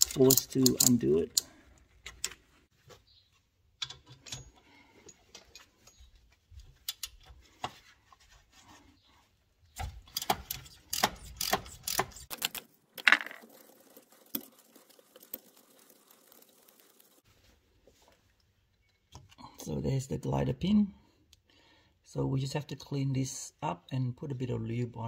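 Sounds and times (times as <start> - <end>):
ratchet wrench clicking: 0.0 - 1.5, 10.1 - 12.2.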